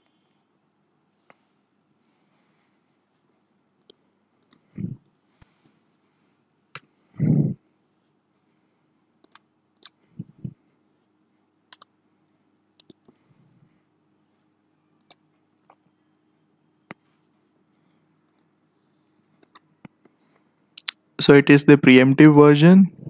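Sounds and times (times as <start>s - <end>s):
computer mouse clicks: 3.8s - 5.5s, 9.2s - 10.0s, 11.7s - 12.0s, 12.7s - 13.6s, 15.0s - 15.8s, 18.2s - 18.5s, 19.3s - 20.0s.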